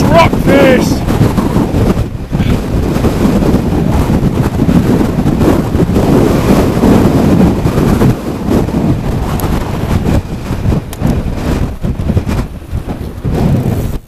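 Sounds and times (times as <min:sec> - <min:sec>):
gusty wind buffeting microphone: 0:00.0 - 0:14.0.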